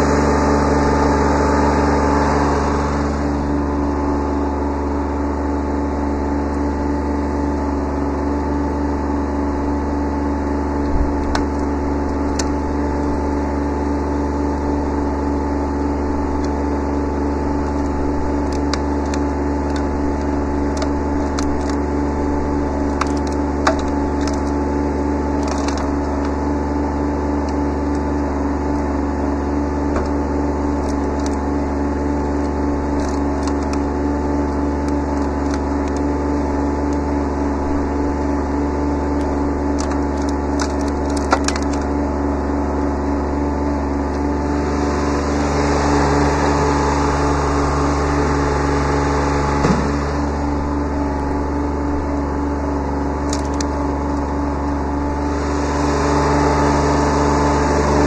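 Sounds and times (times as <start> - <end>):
tractor diesel engine running: 0.0 - 58.0
branches cracking and snapping: 10.5 - 13.8, 14.4 - 44.4, 46.1 - 55.3.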